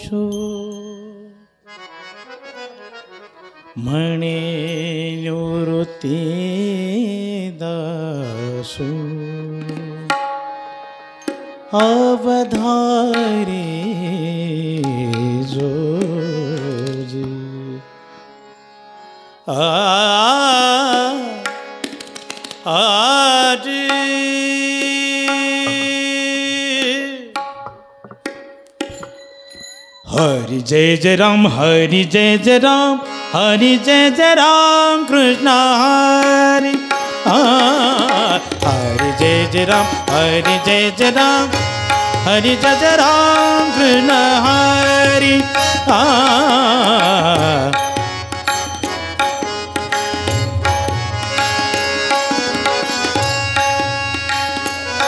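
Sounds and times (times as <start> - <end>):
man singing ornamented vowel: 0.0 - 1.6, 3.8 - 10.1, 11.8 - 17.9, 22.7 - 27.3, 30.1 - 48.0
harmonium melody: 0.0 - 55.0
tabla strokes: 21.0 - 22.9, 23.8 - 31.2, 36.2 - 55.0.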